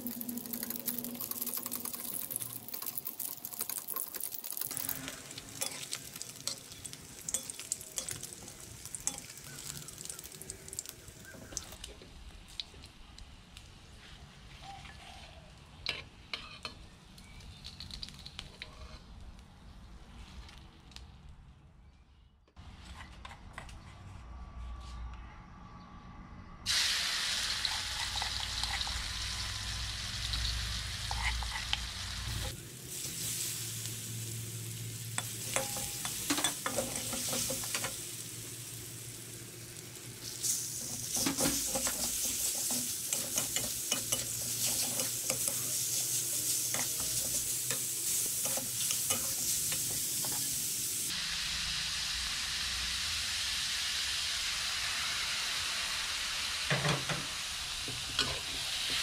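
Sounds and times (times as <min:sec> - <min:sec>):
food sizzling in hot oil: 0:00.0 - 0:12.8, 0:26.7 - 0:59.0
spatula scraping and tapping a wok: 0:04.7 - 0:09.8, 0:15.8 - 0:16.8, 0:31.1 - 0:32.6, 0:35.2 - 0:38.0, 0:40.8 - 0:50.5.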